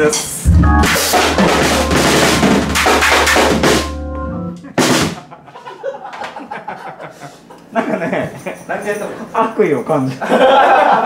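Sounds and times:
drum fill with cymbals: 0:00.1 - 0:04.1
low keyboard chord: 0:00.4 - 0:04.8.

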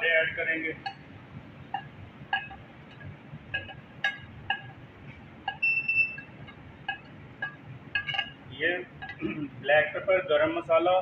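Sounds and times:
metal ladle clinking on plate and pot: 0:00.8 - 0:01.1, 0:01.7 - 0:04.8, 0:05.4 - 0:09.4
ladle squeaking across plate: 0:05.5 - 0:08.4.

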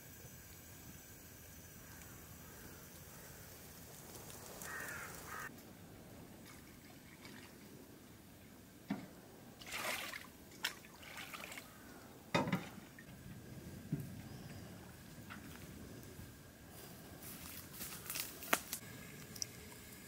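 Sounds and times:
faint trickling water: 0:06.3 - 0:08.7, 0:09.6 - 0:13.1.

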